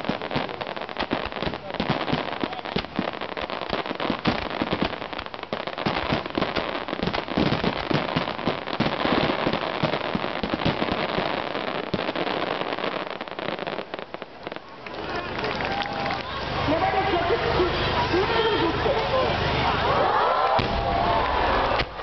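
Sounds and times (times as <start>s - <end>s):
fireworks booms: 0.0s - 14.7s, 20.5s - 22.0s
fireworks crackling: 0.0s - 20.0s, 20.6s - 22.0s.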